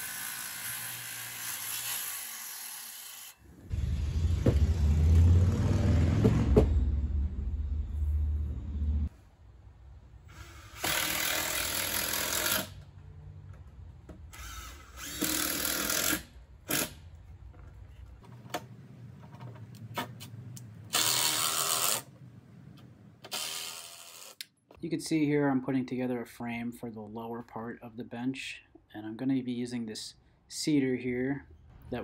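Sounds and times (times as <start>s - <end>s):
cordless drill driving screws: 14.3s - 16.9s, 20.9s - 22.1s, 23.3s - 24.4s
handling clicks and knocks: 17.4s - 20.7s.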